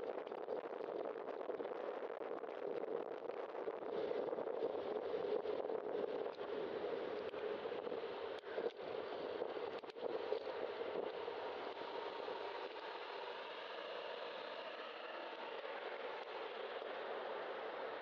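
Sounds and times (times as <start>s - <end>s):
passing car traffic: 10.6s - 18.0s.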